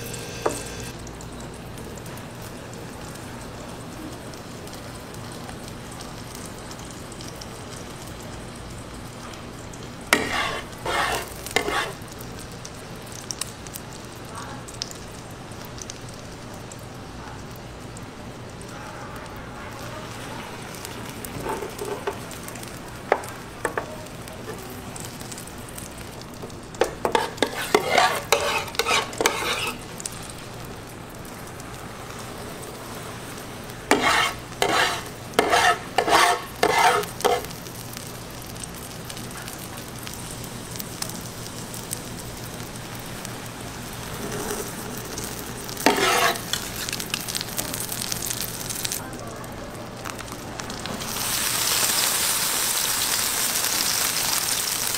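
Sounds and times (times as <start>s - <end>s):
omelette sizzling on a pan: 0.0s - 54.9s
plastic spatulas scraping and tapping: 10.2s - 12.0s, 26.8s - 29.8s, 33.9s - 37.4s, 45.9s - 46.4s.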